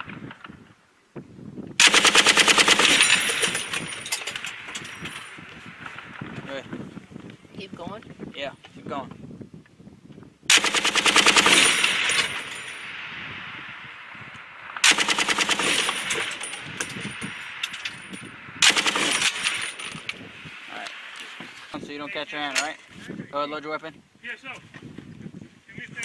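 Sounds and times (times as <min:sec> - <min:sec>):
machine gun bursts: 0:01.8 - 0:05.2, 0:10.5 - 0:12.9, 0:14.8 - 0:20.2.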